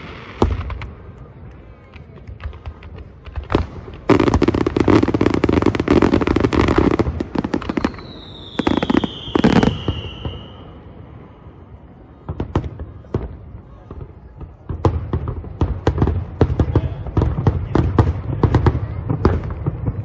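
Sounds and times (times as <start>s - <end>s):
fireworks cracks and bangs: 0.0s - 20.0s
firework whistle sliding down: 7.6s - 10.7s.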